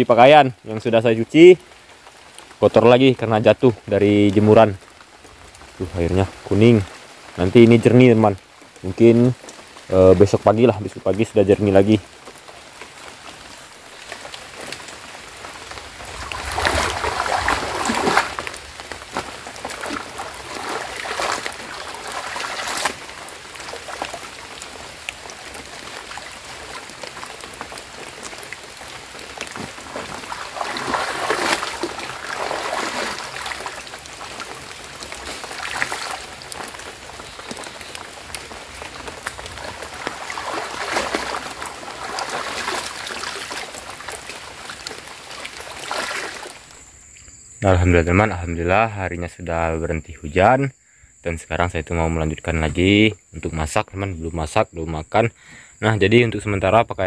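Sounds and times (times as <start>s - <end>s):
water dripping: 0.0s - 47.4s
clothes swishing and splashing in water: 14.0s - 46.6s.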